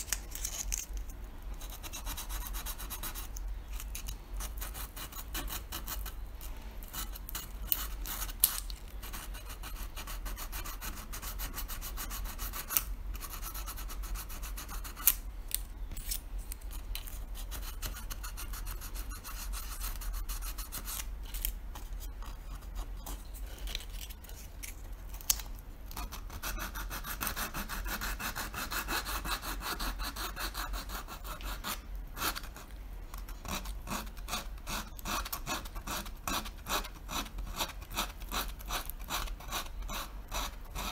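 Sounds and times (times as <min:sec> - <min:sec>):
sandpaper rubbing on plastic: 0:17.3 - 0:21.1, 0:33.4 - 0:40.9.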